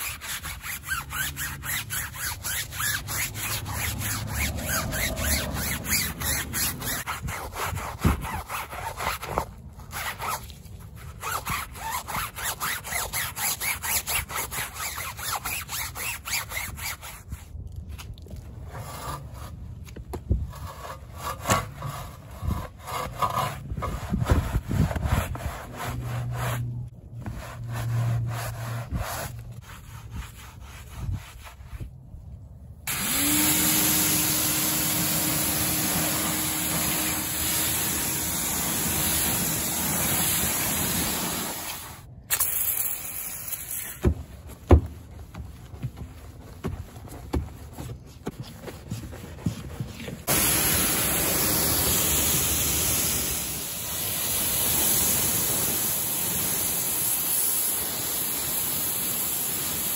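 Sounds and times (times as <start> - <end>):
brush scrubbing a wheel: 0.0 - 42.1, 43.2 - 59.9
stiff brush scrubbing a tire: 0.0 - 42.2, 43.0 - 59.9
pressure washer spraying: 32.9 - 43.9, 50.3 - 59.9.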